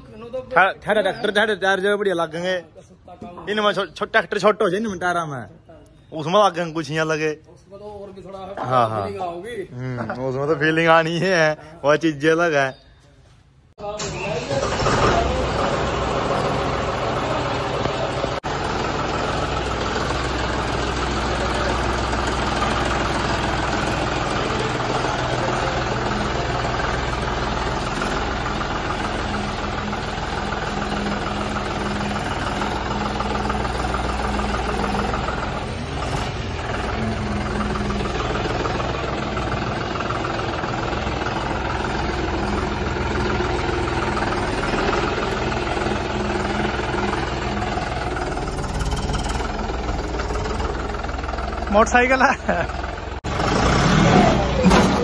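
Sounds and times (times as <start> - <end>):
tractor diesel engine running: 13.8 - 55.0.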